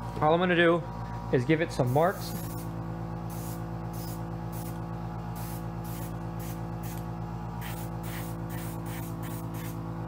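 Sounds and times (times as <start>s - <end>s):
air compressor hum: 0.0s - 10.0s
airbrush spray hisses: 1.9s - 2.7s, 3.3s - 4.8s, 5.4s - 7.0s, 7.6s - 9.8s.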